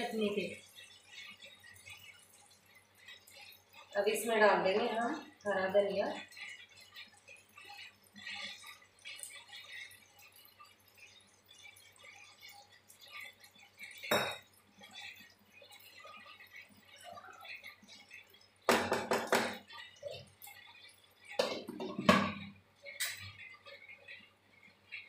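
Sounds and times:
glass lid clinking on pan: 0:14.1 - 0:14.4
wooden spatula knocking metal pan: 0:18.7 - 0:19.6, 0:21.4 - 0:22.5.

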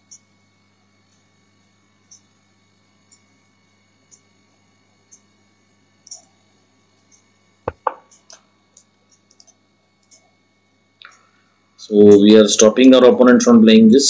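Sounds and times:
low mains hum: 0:00.0 - 0:14.0
faint ticks: 0:02.0 - 0:02.3, 0:03.0 - 0:03.3, 0:04.0 - 0:04.4, 0:05.1 - 0:05.3, 0:07.0 - 0:07.3, 0:08.1 - 0:10.4, 0:11.0 - 0:11.4
computer mouse clicking: 0:09.1 - 0:10.3.

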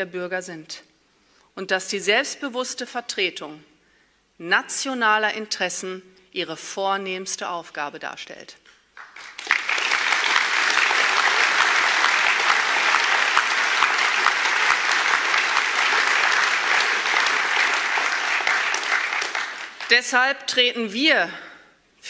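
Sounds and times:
audience applauding: 0:09.0 - 0:20.0.

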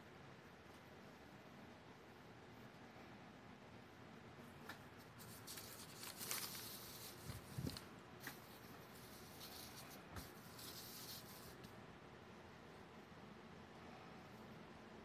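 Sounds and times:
paper rustling: 0:04.7 - 0:11.7
ink brush stroking paper: 0:05.0 - 0:11.8.

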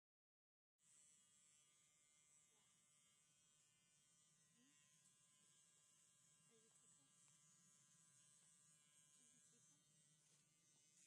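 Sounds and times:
electric clippers buzzing: 0:00.8 - 0:11.0.

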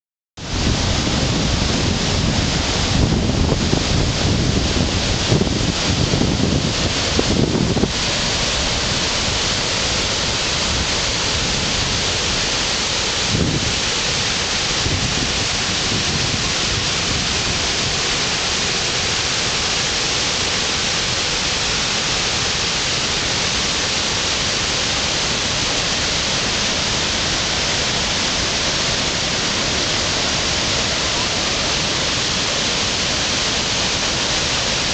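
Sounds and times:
waterfall rushing: 0:00.4 - 0:34.9.

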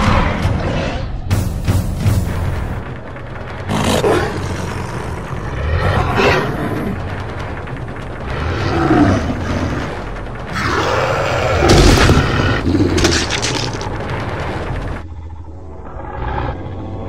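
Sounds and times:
werewolf growls and snarls: 0:03.6 - 0:07.5, 0:08.2 - 0:14.3.

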